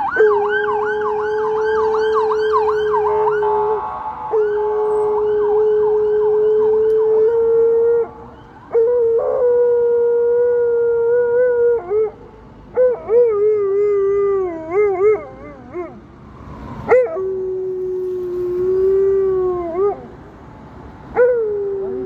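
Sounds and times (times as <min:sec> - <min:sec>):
faint police siren: 0:00.0 - 0:22.0.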